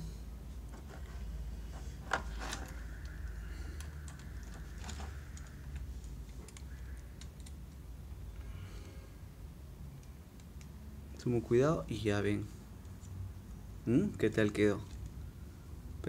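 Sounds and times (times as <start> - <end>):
low steady hum: 0.0 - 16.0
plastic toy parts clicking: 2.1 - 7.9.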